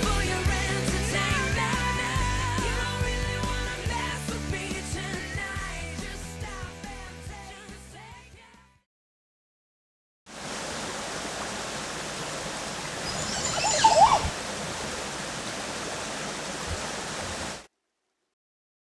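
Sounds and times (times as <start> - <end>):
stream flowing: 10.3 - 17.7
chirping: 13.0 - 14.3.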